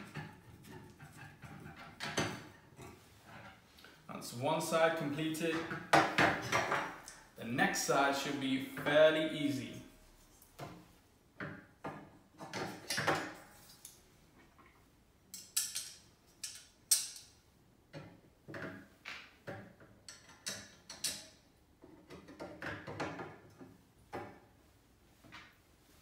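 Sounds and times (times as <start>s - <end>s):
metal rods clinking: 15.3s - 17.4s.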